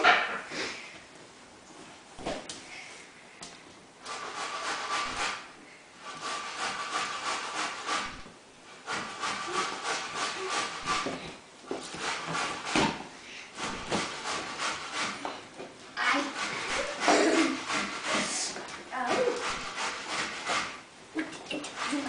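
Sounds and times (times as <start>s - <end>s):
dog scratching sofa and floor: 4.0s - 5.5s, 6.1s - 22.0s.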